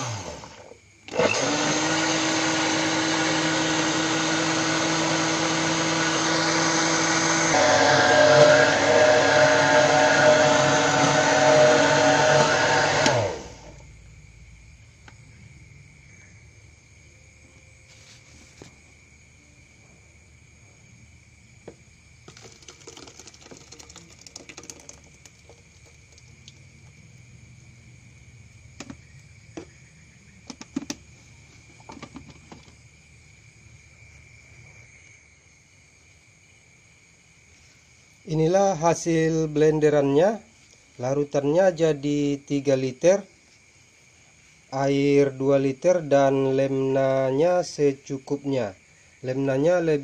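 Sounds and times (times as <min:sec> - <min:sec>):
blender running: 0:00.0 - 0:13.8.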